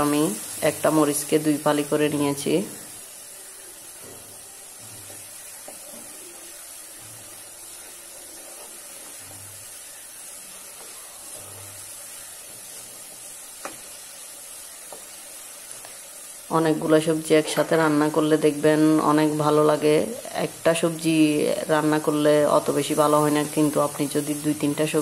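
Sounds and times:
masala sizzling in a pot: 0.0s - 25.0s
soft stirring thuds: 3.6s - 16.1s.

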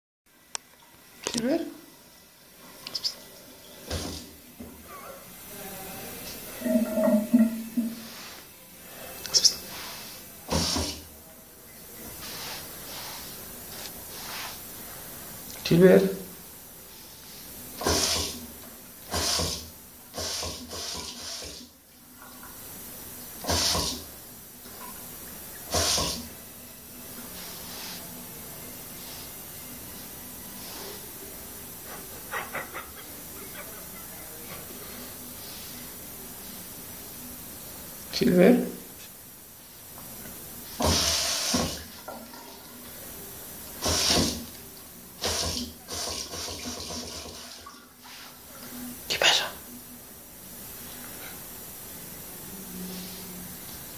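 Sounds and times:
bidet faucet water spurts: 17.8s - 18.4s, 45.2s - 47.8s.

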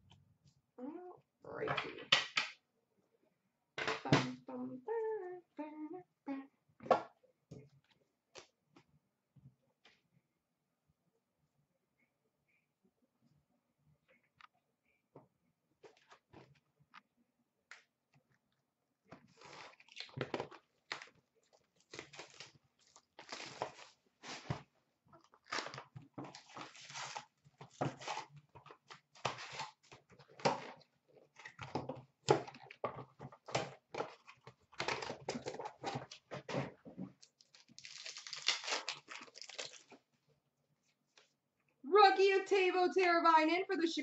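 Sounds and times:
cardboard tearing: 25.4s - 28.4s, 37.3s - 39.9s
wrappers crinkling and rustling: 37.2s - 40.1s.

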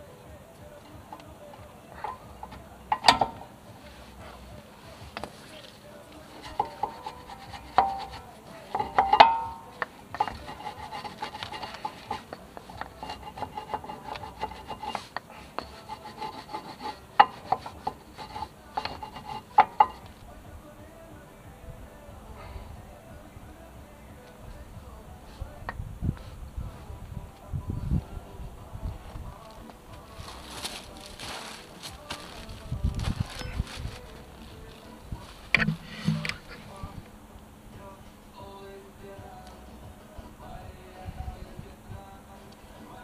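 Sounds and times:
ringing metal clank: 7.7s - 12.3s.

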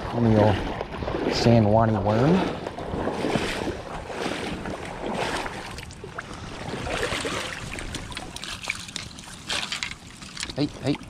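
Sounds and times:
fish splashing in water: 2.4s - 10.4s.

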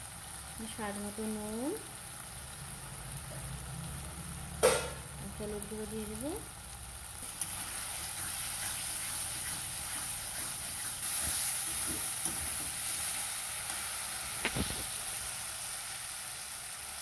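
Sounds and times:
masala sizzling in hot oil: 0.0s - 17.0s
metal spatula scraping pan: 8.0s - 12.7s.

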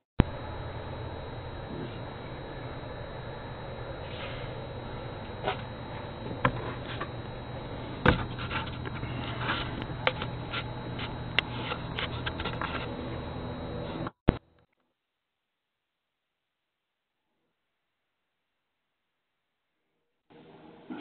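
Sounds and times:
microphone hiss and hum: 0.2s - 14.5s.

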